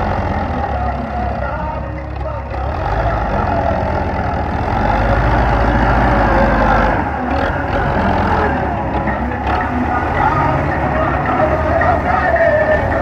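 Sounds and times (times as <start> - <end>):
tractor diesel engine: 0.0 - 13.0.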